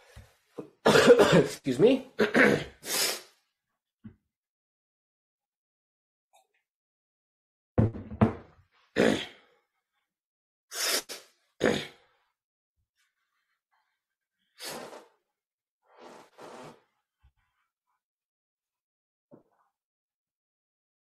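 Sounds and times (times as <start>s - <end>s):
person coughing: 0.8s - 1.6s, 2.2s - 2.8s
person sniffing: 2.8s - 3.4s, 10.7s - 11.9s, 14.6s - 15.2s.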